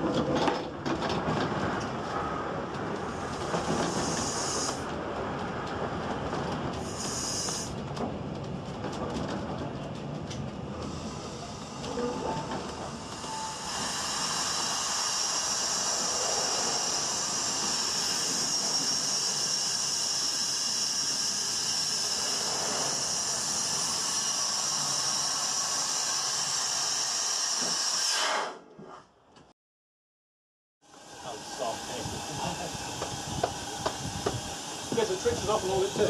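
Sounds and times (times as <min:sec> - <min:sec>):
steam hissing from boiler: 0:03.1 - 0:04.9, 0:06.8 - 0:07.8, 0:12.8 - 0:28.6, 0:30.9 - 0:36.0.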